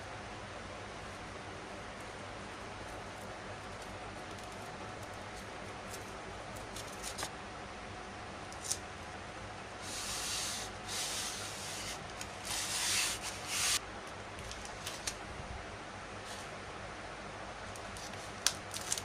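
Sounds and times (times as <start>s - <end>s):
packing tape pulled off roll: 17.9s - 19.0s.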